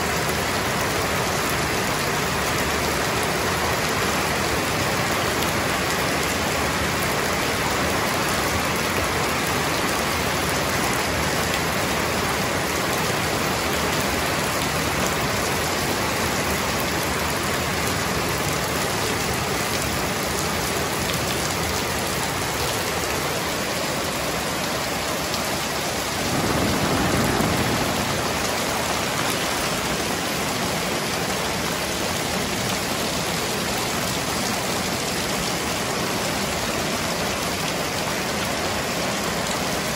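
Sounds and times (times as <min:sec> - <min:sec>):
heavy rain pouring: 0:00.0 - 0:39.9.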